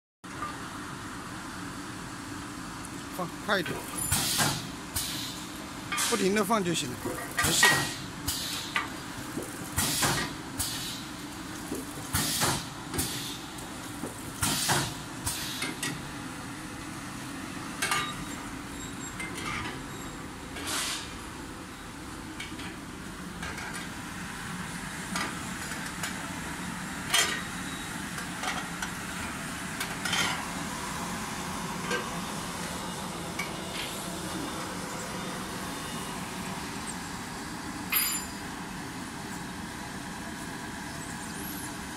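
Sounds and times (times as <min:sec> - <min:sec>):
hum of motors and fan: 0:00.3 - 0:41.9.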